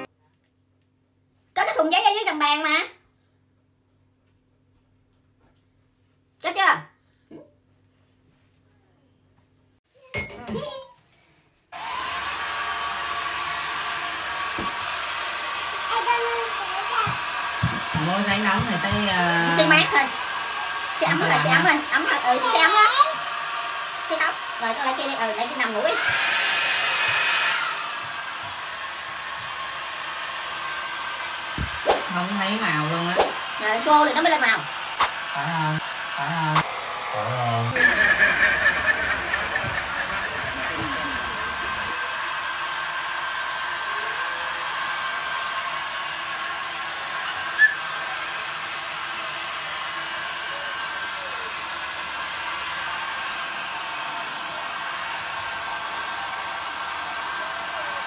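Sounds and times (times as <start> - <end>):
hair dryer blowing: 11.8 - 58.0.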